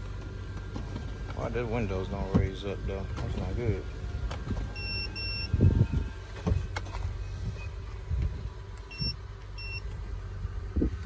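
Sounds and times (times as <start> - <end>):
car warning chime beeps: 4.7 - 5.6, 8.9 - 9.9
wind on microphone: 5.4 - 6.2, 10.7 - 11.0.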